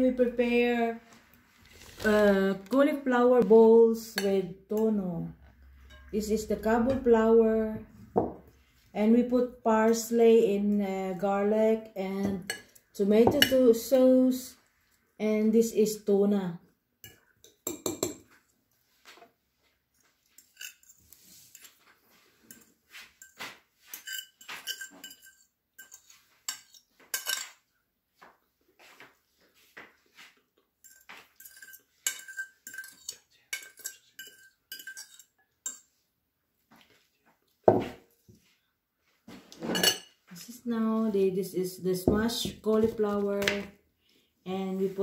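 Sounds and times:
spoon scraping glass bowl: 5.6 - 7.0, 20.2 - 27.6, 30.8 - 35.9, 39.5 - 40.2.

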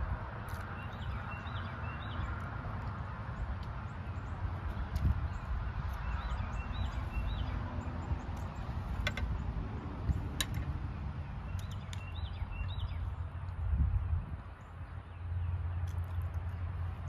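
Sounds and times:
wind rumble on microphone: 0.0 - 17.0
small bird chirping: 3.9 - 9.5, 11.2 - 13.3.

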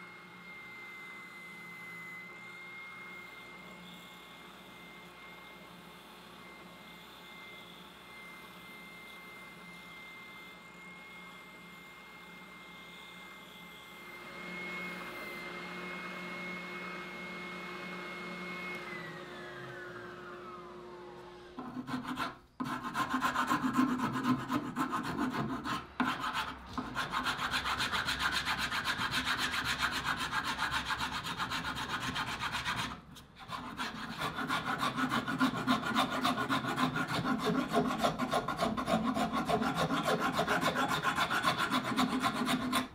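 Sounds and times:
file rasping on wood: 21.6 - 42.9.

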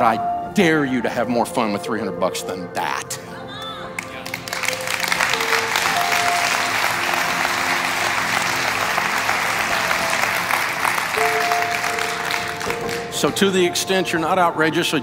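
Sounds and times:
soft background music: 0.0 - 15.0
congregation applauding: 3.9 - 13.4.

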